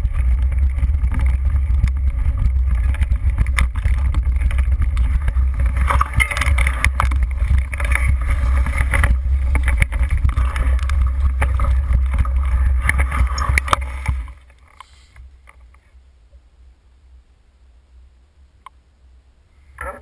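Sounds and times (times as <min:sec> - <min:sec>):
wind buffeting microphone: 0:00.0 - 0:14.4
low rumble: 0:00.0 - 0:19.7
bike rattling clicks: 0:00.1 - 0:15.7.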